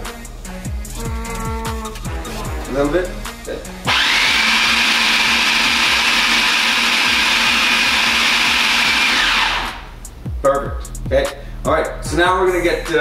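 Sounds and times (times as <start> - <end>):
food processor motor whining: 3.9 - 10.0.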